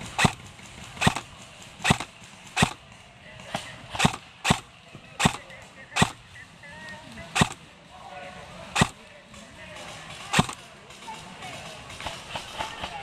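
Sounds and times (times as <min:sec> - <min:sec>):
airsoft gun firing single shots: 0:00.0 - 0:02.9, 0:03.5 - 0:06.3, 0:07.3 - 0:07.7, 0:08.8 - 0:09.0, 0:10.1 - 0:10.7.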